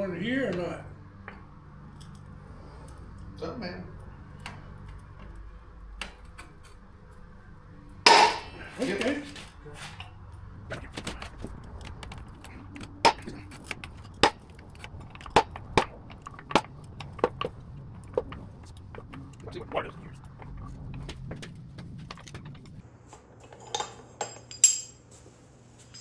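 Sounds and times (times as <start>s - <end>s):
metallic clinks of tools on metal: 23.6s - 25.0s.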